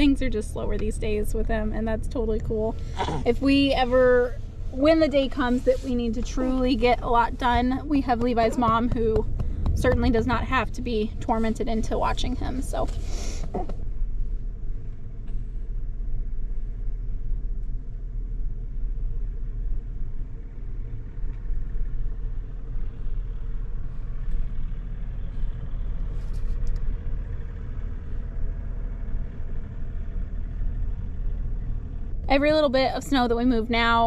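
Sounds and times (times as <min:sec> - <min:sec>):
truck engine rumble: 0:00.0 - 0:34.0.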